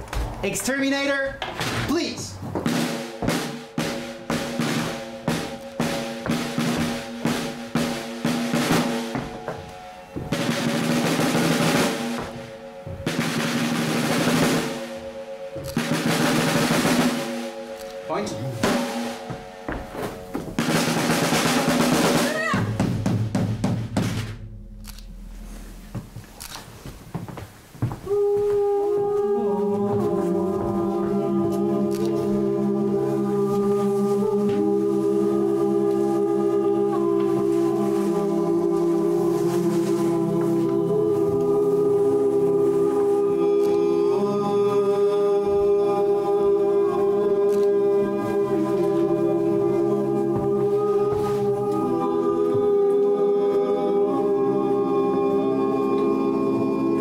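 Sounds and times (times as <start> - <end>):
drum roll: 0.2 - 28.4
choir singing held notes: 1.9 - 23.0, 28.0 - 57.0
voices holding humming chord: 2.2 - 22.6, 27.8 - 57.0
scattered knocks: 18.6 - 24.6.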